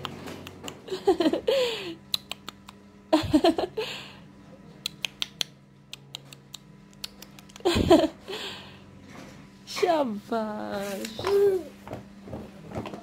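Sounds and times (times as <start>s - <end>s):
faint steady hum: 0.0s - 13.0s
spoon and mouth clicks and smacks: 2.1s - 2.8s, 4.8s - 7.7s.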